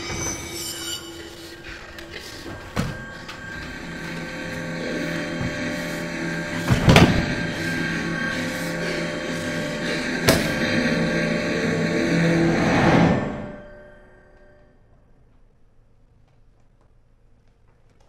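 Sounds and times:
droning soundtrack of held tones: 0:00.0 - 0:15.7
sharp hit: 0:02.7 - 0:14.2.

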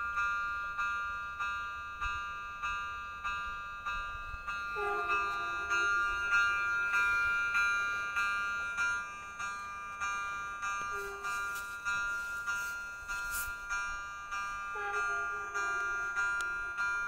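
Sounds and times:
level crossing bell ringing: 0:03.5 - 0:17.0
train horn: 0:04.7 - 0:06.3, 0:10.9 - 0:11.7, 0:14.7 - 0:16.2.

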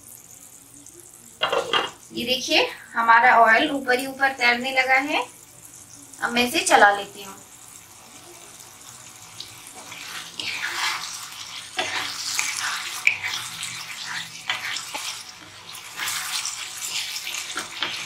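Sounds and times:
spatula scraping thick sauce in pan: 0:09.6 - 0:18.0.

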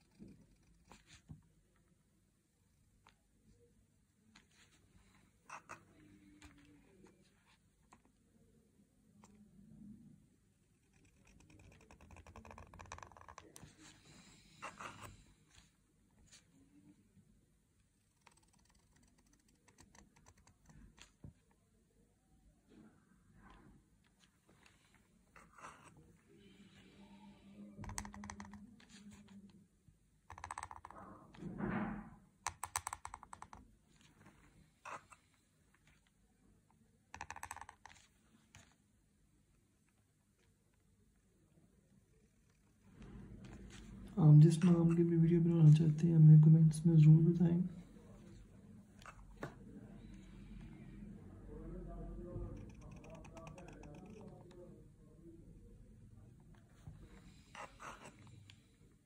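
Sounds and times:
pen nib scratching paper: 0:05.5 - 0:06.6, 0:10.7 - 0:15.6, 0:18.1 - 0:21.2, 0:25.4 - 0:26.0, 0:34.8 - 0:35.3, 0:52.5 - 0:54.4, 0:56.5 - 0:58.7.

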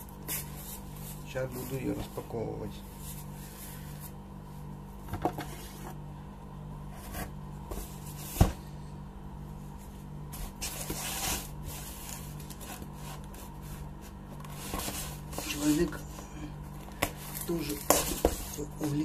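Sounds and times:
steady low hum: 0:00.0 - 0:19.0
knife scraping tape and cardboard: 0:10.5 - 0:13.6.

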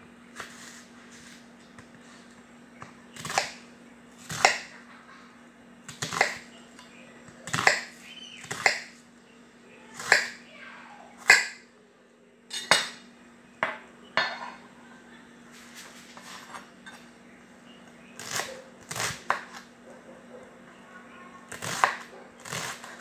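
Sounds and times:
faint steady hum: 0:00.0 - 0:23.0
knife chopping on wooden board: 0:03.2 - 0:03.6, 0:04.3 - 0:04.7, 0:05.9 - 0:06.4, 0:07.5 - 0:08.9, 0:10.0 - 0:10.4, 0:11.2 - 0:11.6, 0:21.6 - 0:22.8.

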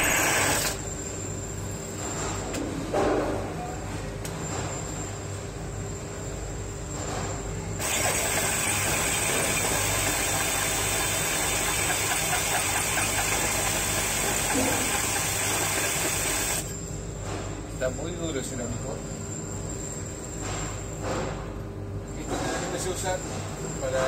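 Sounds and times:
hole saw cutting tile: 0:00.0 - 0:00.8, 0:07.8 - 0:16.6.

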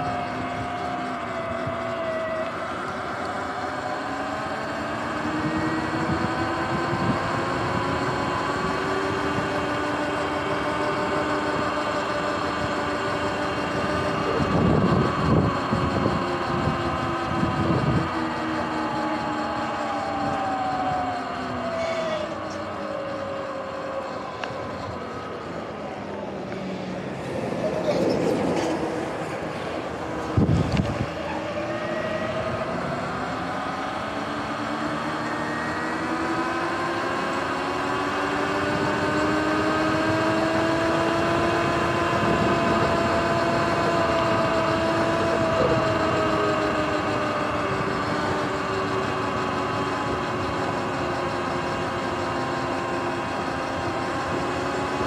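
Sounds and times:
electric motor whining: 0:00.0 - 0:27.5, 0:28.2 - 0:55.0
tyre and wind noise: 0:30.2 - 0:31.3.

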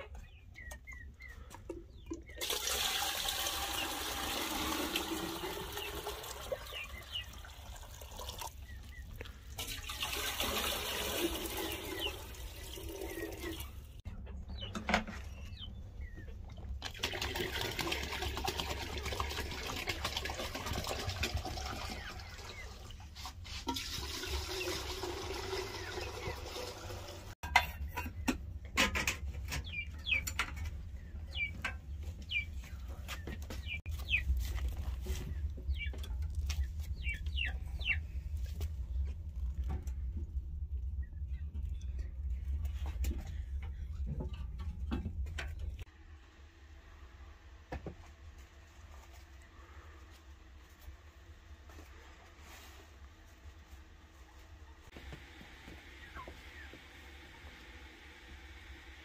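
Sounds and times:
water pouring into metal kettles: 0:02.2 - 0:08.7, 0:09.5 - 0:14.0, 0:16.8 - 0:23.0, 0:23.6 - 0:27.4.

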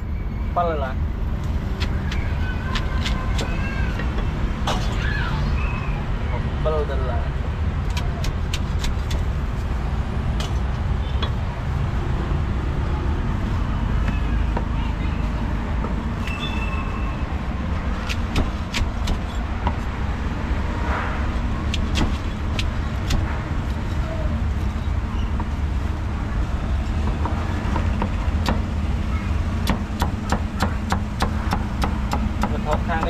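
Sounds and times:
street traffic rumble: 0:00.0 - 0:33.0
cleaver chopping on wooden board: 0:29.6 - 0:33.0.

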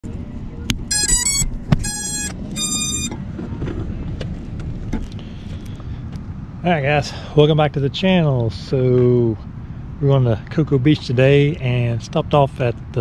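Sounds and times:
drone power-up chime: 0:00.9 - 0:03.1
drone motor beeps: 0:00.9 - 0:03.2.

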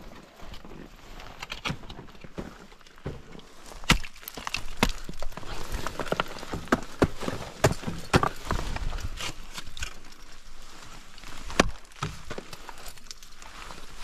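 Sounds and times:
ice tools striking ice: 0:03.8 - 0:08.6.

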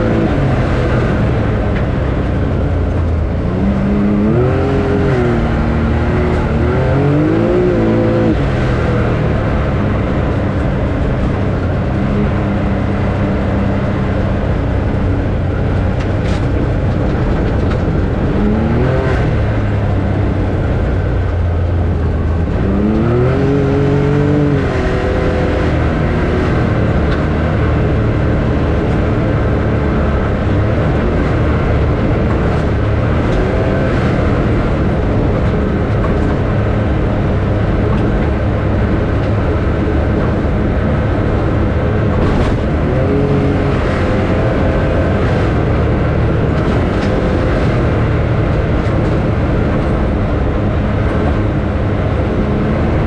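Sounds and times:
road rumble: 0:00.0 - 0:53.0
vehicle engine accelerating: 0:00.0 - 0:53.0.

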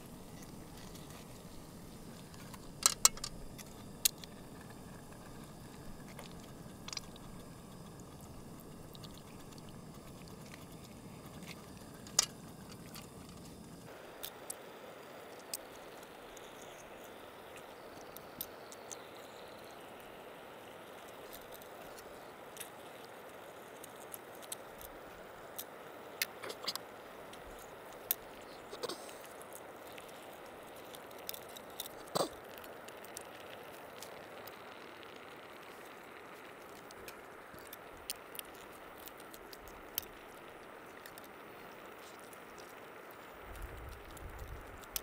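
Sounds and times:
faint steady hiss: 0:00.0 - 0:45.0
small scattered clicks: 0:21.0 - 0:45.0.

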